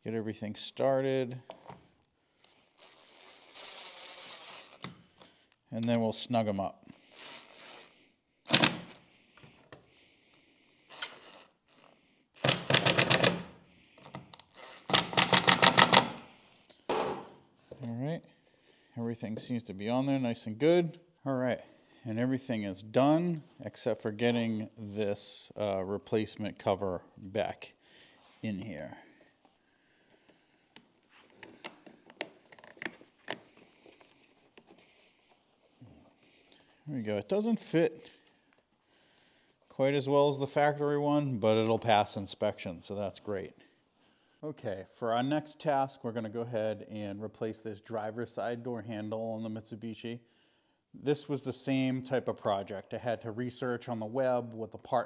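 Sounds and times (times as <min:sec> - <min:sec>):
screwdriver ratcheting clicks: 0:08.5 - 0:09.0, 0:10.9 - 0:11.5, 0:12.4 - 0:13.5, 0:14.3 - 0:16.2.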